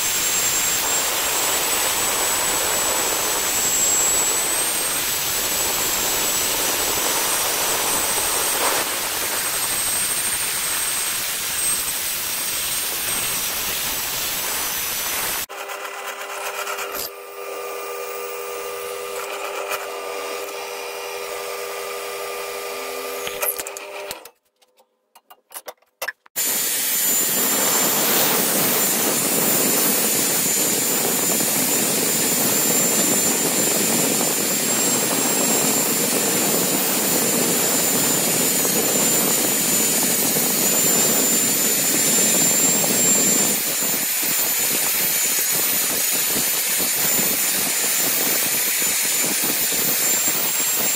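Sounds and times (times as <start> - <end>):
drill press humming: 0.0 - 24.3
electric drill whirring: 0.0 - 24.3, 26.3 - 50.9.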